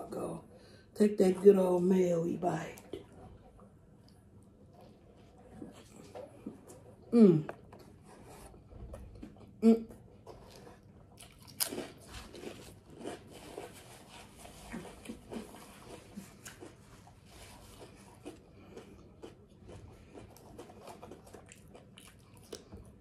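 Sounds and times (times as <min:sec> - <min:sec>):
chewing with wet mouth clicks: 0:10.3 - 0:13.7, 0:17.7 - 0:23.0.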